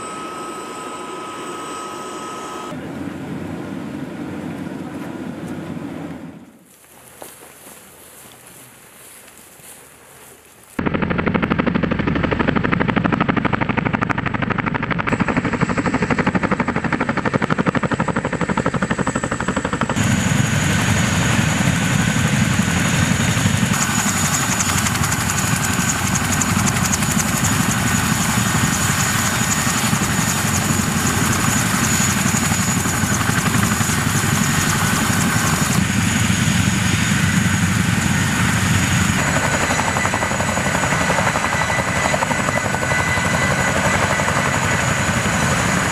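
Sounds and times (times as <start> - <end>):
helicopter rotors beating: 10.8 - 45.9.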